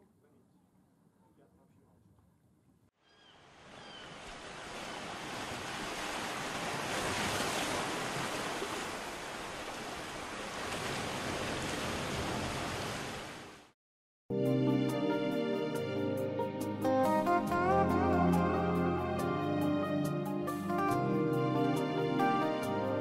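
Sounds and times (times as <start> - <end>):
sea waves rushing water: 3.5 - 13.7.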